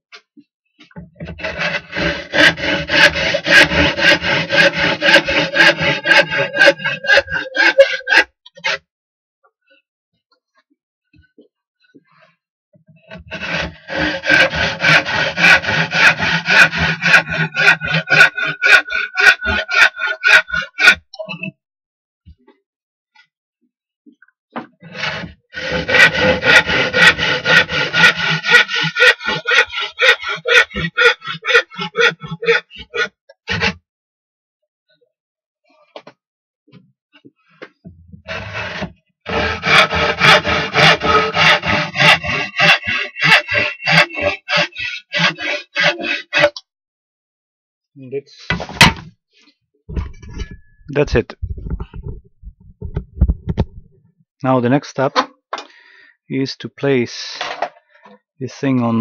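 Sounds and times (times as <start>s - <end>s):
hand tool scraping on wood: 1.0s - 8.8s, 13.1s - 21.0s, 24.8s - 33.8s, 37.6s - 46.6s, 48.5s - 49.0s.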